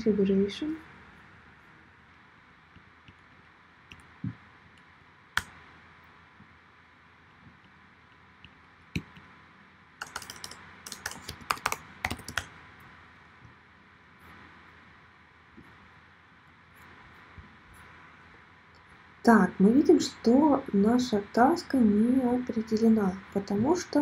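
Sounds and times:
typing on computer keyboard: 10.0s - 12.5s.

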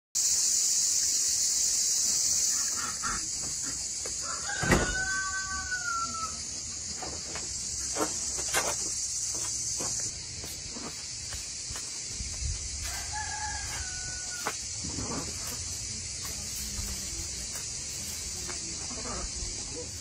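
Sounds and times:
steady high hiss: 0.2s - 20.0s
rooster crowing: 4.2s - 6.5s, 12.8s - 14.6s.

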